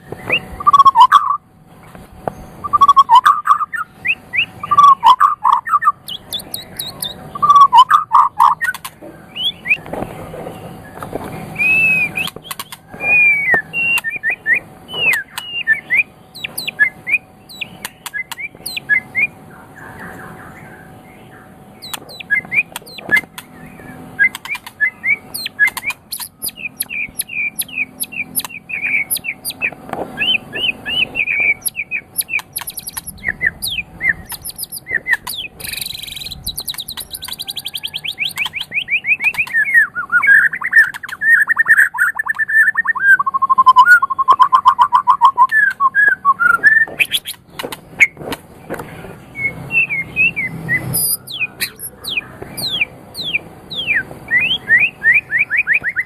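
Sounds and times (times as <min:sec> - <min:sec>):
bird singing whistled notes: 0:00.0 - 0:01.4, 0:02.3 - 0:09.9, 0:10.8 - 0:47.4, 0:49.3 - 0:56.0.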